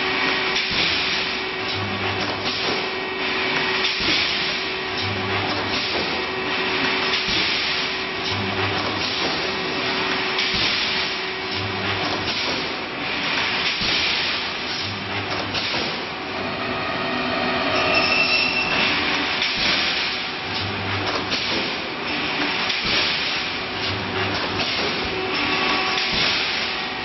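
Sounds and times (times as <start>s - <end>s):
welding machine deep hum: 0.0s - 27.0s.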